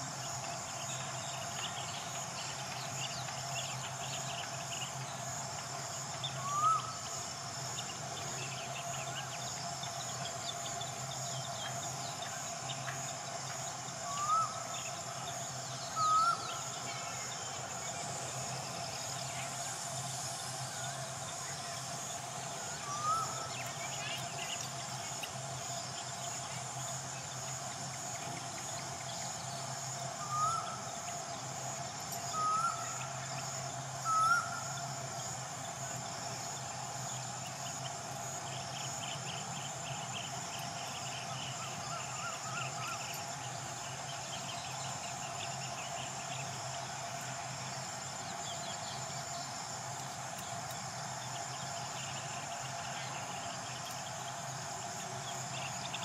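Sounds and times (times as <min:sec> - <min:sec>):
insects buzzing: 0:00.0 - 0:56.0.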